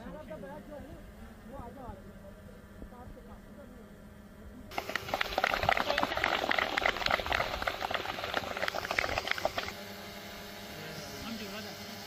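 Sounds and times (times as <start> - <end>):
people clapping: 4.7 - 9.7.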